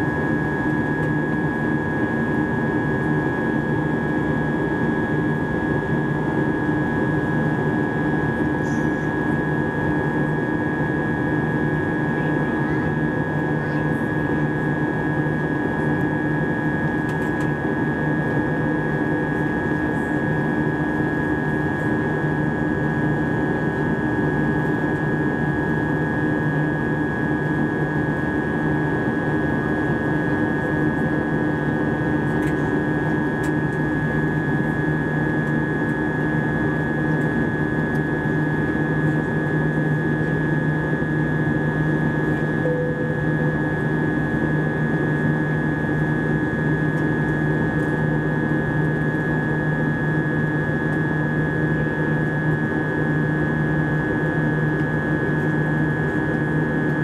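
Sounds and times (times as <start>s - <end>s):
jet engine hum: 13.4s - 57.0s.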